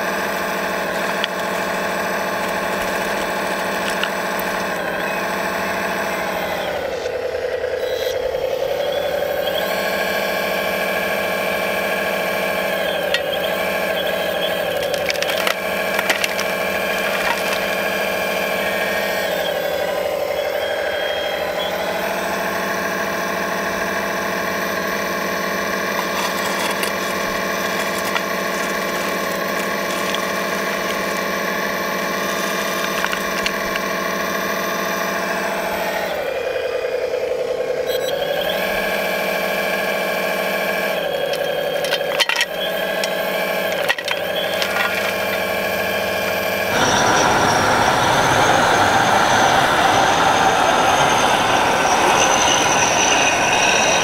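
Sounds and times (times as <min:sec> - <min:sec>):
toy excavator pump whining: 0:00.0 - 0:54.0
gravel stones clattering: 0:00.1 - 0:05.0, 0:12.7 - 0:20.1, 0:25.5 - 0:34.2, 0:41.2 - 0:45.8.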